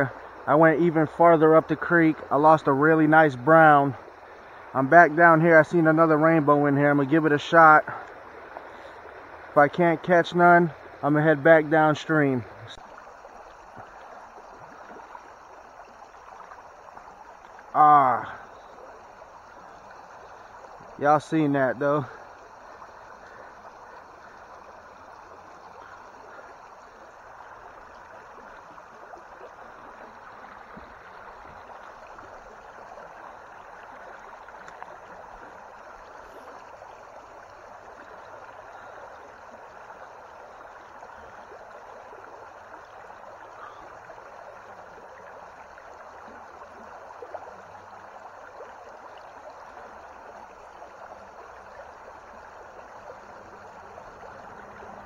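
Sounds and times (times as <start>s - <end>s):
creek water running over stones: 0.0s - 55.0s
faint clicks: 34.6s - 34.9s.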